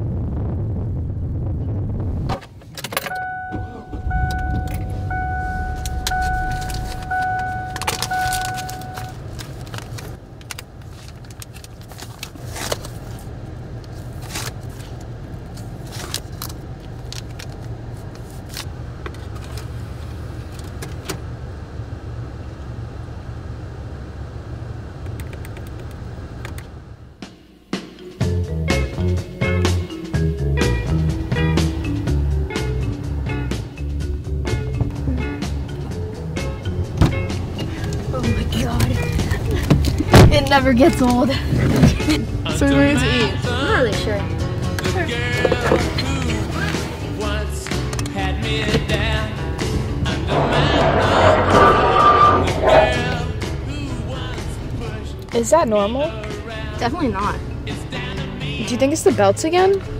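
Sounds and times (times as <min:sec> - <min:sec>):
low engine hum: 0:00.0 - 0:27.3, 0:28.2 - 0:59.9
dashboard warning chime: 0:03.0 - 0:09.3.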